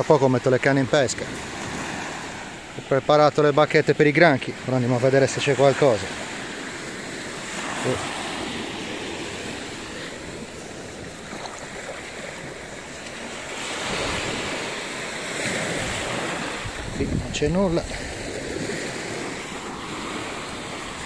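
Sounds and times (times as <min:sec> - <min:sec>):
sea waves washing onto beach: 0:00.0 - 0:21.0
wind buffeting microphone: 0:15.6 - 0:21.0.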